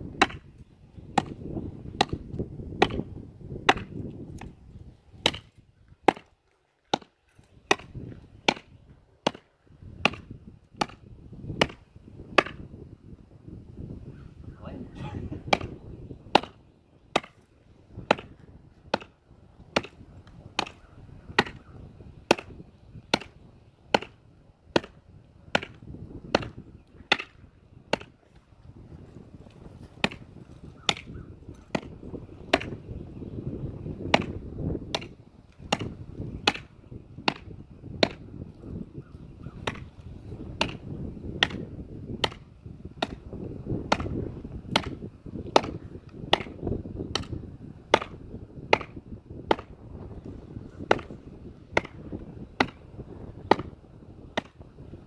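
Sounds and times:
knife chopping wood: 0.2s - 0.5s, 1.1s - 3.1s, 3.7s - 4.5s, 5.2s - 6.3s, 6.9s - 7.1s, 7.7s - 11.0s, 11.6s - 11.8s, 12.4s - 12.6s, 15.5s - 20.0s, 20.6s - 20.8s, 21.4s - 21.7s, 22.3s - 28.4s, 29.9s - 32.8s, 34.1s - 38.2s, 39.6s - 40.0s, 40.6s - 41.6s, 42.2s - 42.4s, 43.0s - 49.7s, 50.8s - 52.8s, 53.5s - 53.7s, 54.3s - 54.6s.

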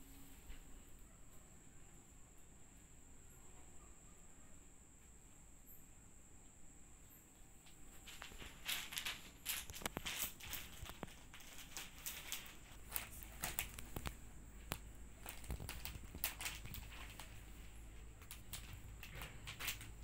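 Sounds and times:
plastic and paper wrapping crinkling: 7.8s - 20.0s.

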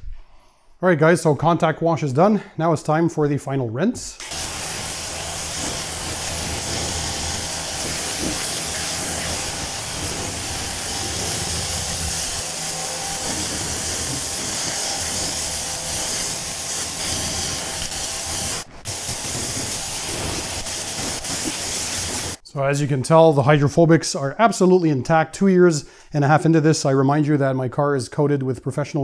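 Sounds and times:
pressure washer spraying water: 4.2s - 22.4s.

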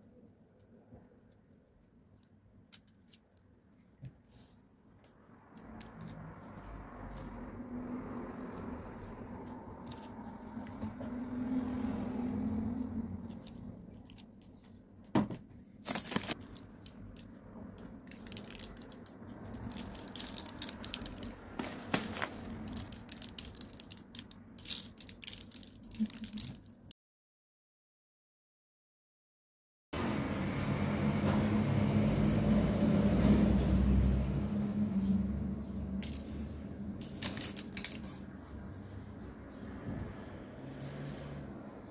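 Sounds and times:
baking paper crinkling: 15.8s - 26.9s, 37.0s - 38.4s
seeds sprinkling ticks: 15.8s - 26.9s.

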